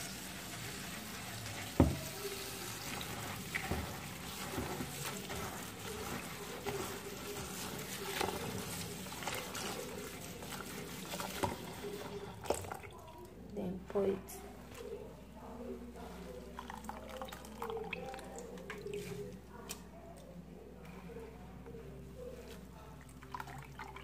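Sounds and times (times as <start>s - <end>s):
hand swishing leaves in water: 0.0s - 12.8s, 17.0s - 19.8s
tap running into bowl: 1.7s - 2.2s.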